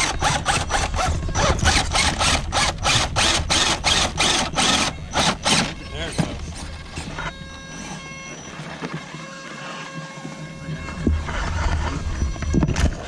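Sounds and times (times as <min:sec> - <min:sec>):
toy truck motor ratcheting: 0:00.0 - 0:06.1
low motor hum: 0:00.0 - 0:13.0.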